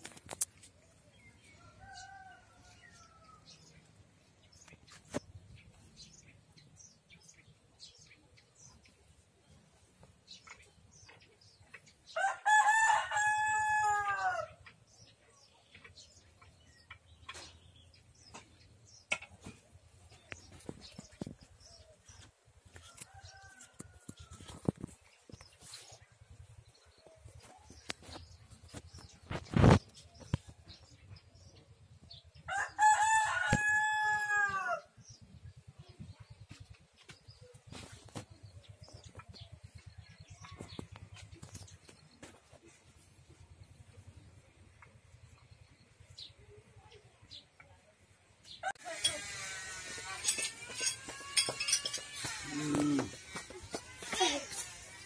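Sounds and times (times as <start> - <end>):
rooster crowing: 12.2 - 14.5, 32.5 - 34.8.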